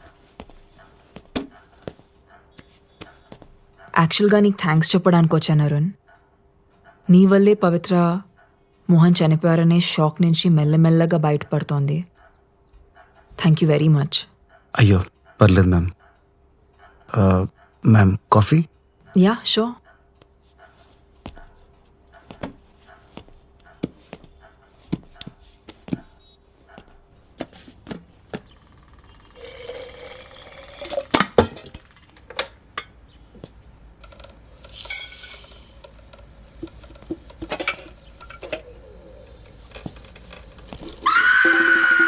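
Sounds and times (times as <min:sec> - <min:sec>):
footsteps: 0:00.0 - 0:04.0, 0:20.2 - 0:28.5
liquid pouring: 0:29.4 - 0:31.2
mugs and utensils clinking: 0:29.4 - 0:31.8, 0:34.6 - 0:36.0, 0:36.6 - 0:38.8.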